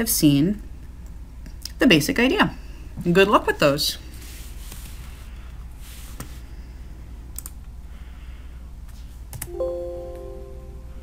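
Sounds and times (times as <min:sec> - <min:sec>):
steady low hum: 0:00.0 - 0:11.0
computer mouse clicks: 0:07.3 - 0:07.6.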